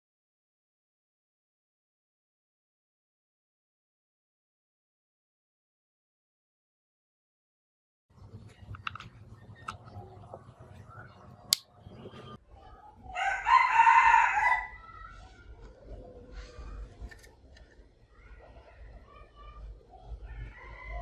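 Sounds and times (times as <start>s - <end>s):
rooster crowing: 13.1s - 14.9s, 20.3s - 21.0s.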